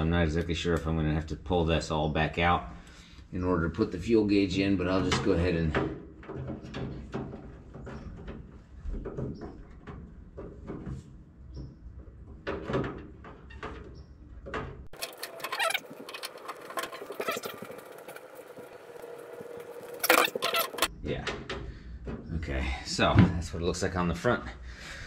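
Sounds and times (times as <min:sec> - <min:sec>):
metal grilles clicking and scraping: 0:12.0 - 0:22.2
brief high squeaks: 0:20.0 - 0:20.9.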